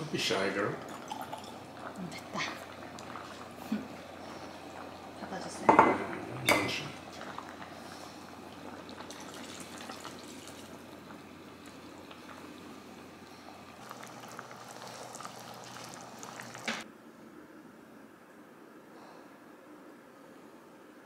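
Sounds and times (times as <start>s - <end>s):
watery hiss with ticks: 1.6s - 5.5s.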